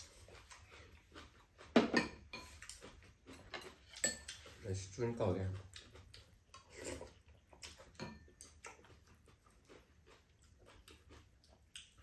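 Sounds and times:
noodles being chewed: 0:00.0 - 0:12.0.

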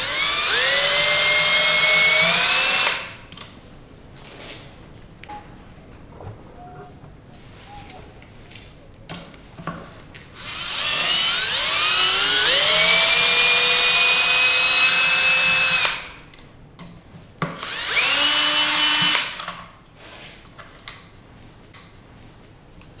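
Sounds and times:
power drill whining: 0:00.0 - 0:03.2, 0:10.2 - 0:16.2, 0:17.6 - 0:19.4.

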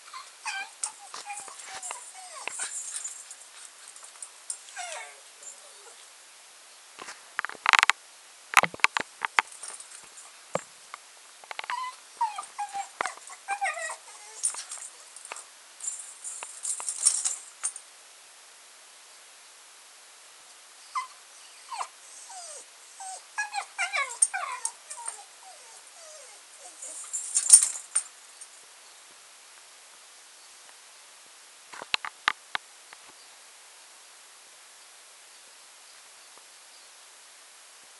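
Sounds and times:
dog whimpering: 0:00.0 - 0:03.1, 0:04.7 - 0:06.0, 0:11.6 - 0:15.2, 0:20.9 - 0:27.8.

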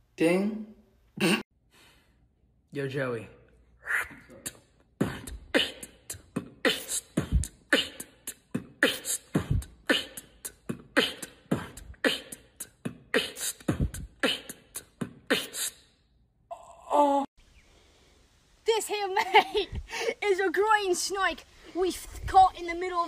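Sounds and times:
person beatboxing: 0:03.8 - 0:15.9.

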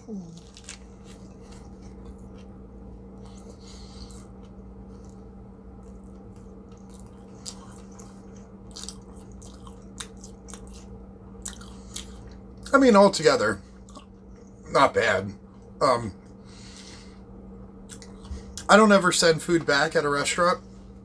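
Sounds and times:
steady low hum: 0:00.0 - 0:21.0
person chewing food: 0:00.1 - 0:12.7, 0:13.7 - 0:14.6, 0:17.8 - 0:18.7.

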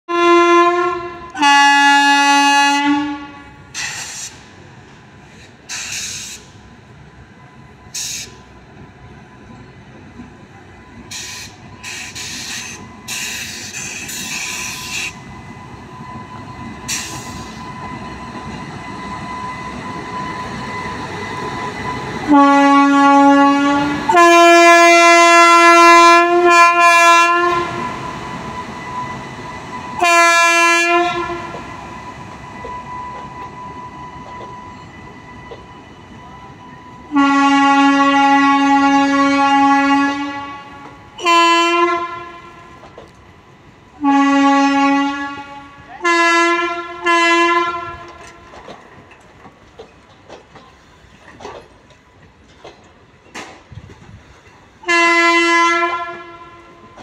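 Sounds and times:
locomotive two-tone horn: 0:00.1 - 0:03.8, 0:22.2 - 0:28.0, 0:28.8 - 0:31.8, 0:32.4 - 0:42.9, 0:44.0 - 0:48.5, 0:54.8 - 0:57.0
faint steady whine of locomotive: 0:00.1 - 0:57.0.

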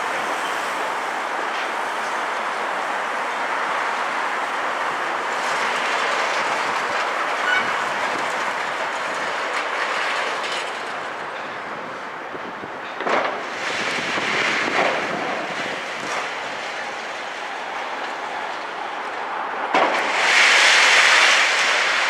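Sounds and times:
excavator engines running: 0:00.0 - 0:22.0
concrete rubble clatter and crunch: 0:05.4 - 0:11.5
loud crashes: 0:19.7 - 0:22.0.

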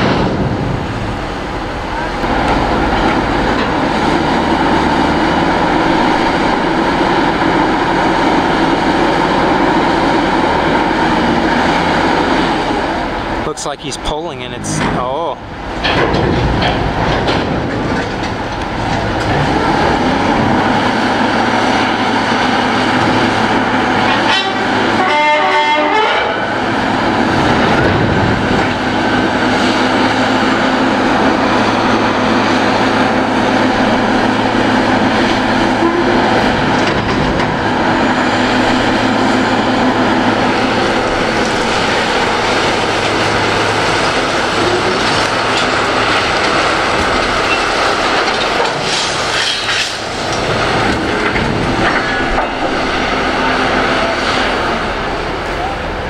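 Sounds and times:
diesel engines under load: 0:00.0 - 0:56.0.

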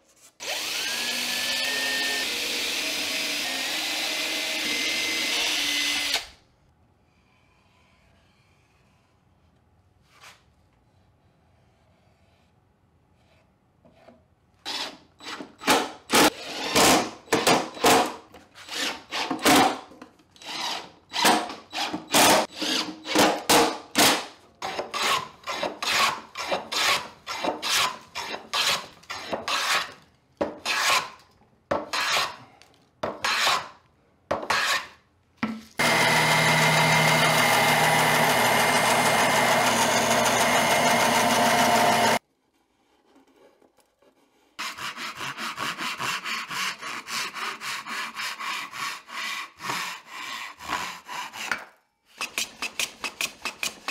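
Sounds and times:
hand tool scraping wood: 0:24.6 - 0:31.2, 0:31.8 - 0:33.8, 0:34.4 - 0:35.0, 0:42.8 - 0:53.9
band saw humming: 0:35.8 - 0:42.2.

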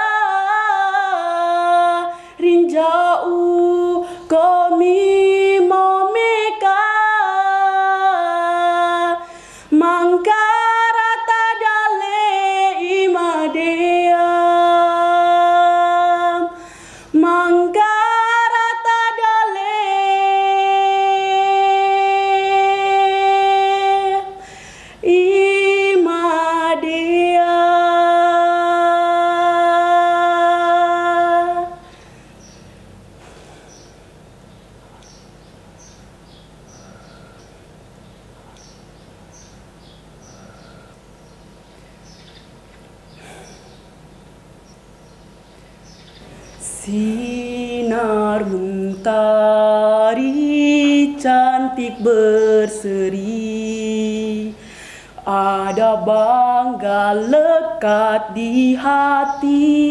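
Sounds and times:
girl singing unaccompanied: 0:00.0 - 0:32.0, 0:46.5 - 0:59.9.

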